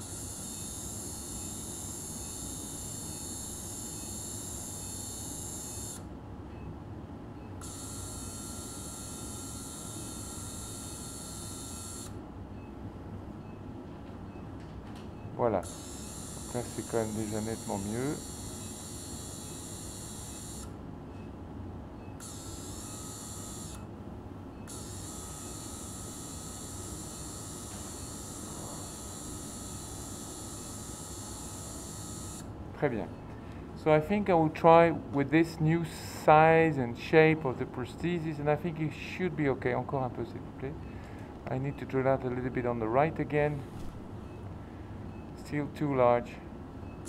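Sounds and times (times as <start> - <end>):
surgical drill high whine: 0.0 - 6.0, 7.6 - 12.1, 15.6 - 20.7, 22.2 - 23.9, 24.7 - 32.5.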